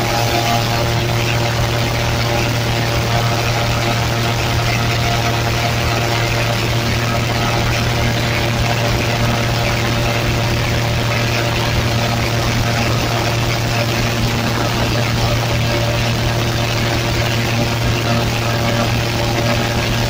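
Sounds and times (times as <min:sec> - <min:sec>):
airboat engine and propeller drone: 0:00.0 - 0:20.0.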